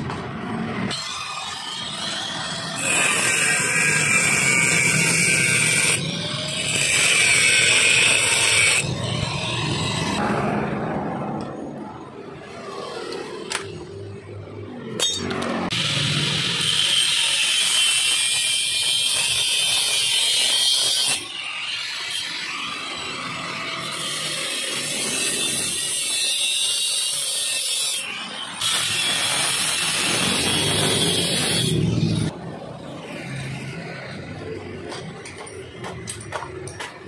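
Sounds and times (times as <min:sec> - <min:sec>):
angle grinder cutting steel: 0:00.3 - 0:10.2, 0:12.3 - 0:32.4.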